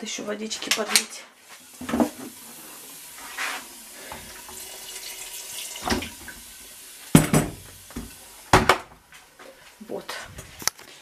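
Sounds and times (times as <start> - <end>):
kitchen tap running: 1.4 - 9.8.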